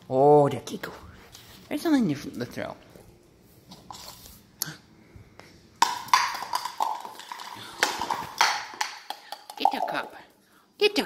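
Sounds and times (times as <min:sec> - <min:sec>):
plastic cup tapping floor: 0:05.8 - 0:10.0.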